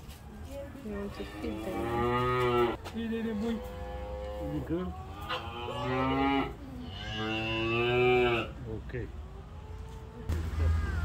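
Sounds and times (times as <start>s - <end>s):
calf mooing: 1.2s - 8.6s.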